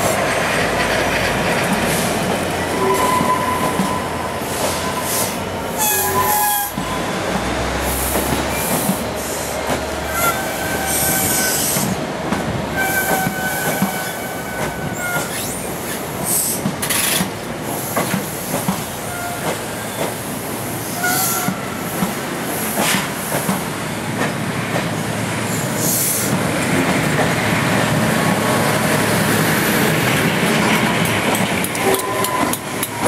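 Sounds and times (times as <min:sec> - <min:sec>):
train wheels clicking over rail joints: 0:14.6 - 0:20.3, 0:21.3 - 0:25.0, 0:29.8 - 0:33.0.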